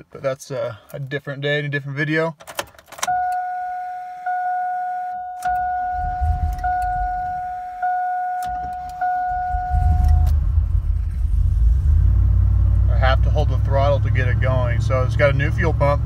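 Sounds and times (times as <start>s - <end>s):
dashboard warning chime: 3.0s - 10.4s
car engine running: 5.5s - 16.0s.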